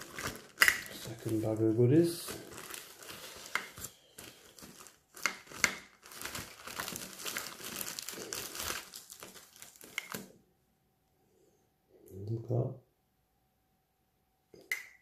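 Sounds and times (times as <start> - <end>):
bag rustling and crinkling: 0.0 - 10.3.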